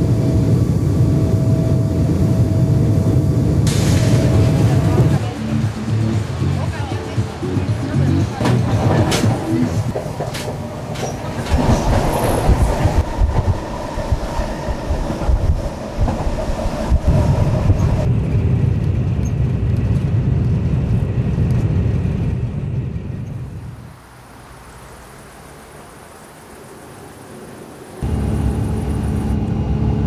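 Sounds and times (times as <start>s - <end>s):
train low rumble: 0.0s - 24.2s, 27.2s - 30.0s
train wheel clicks: 8.4s - 14.3s.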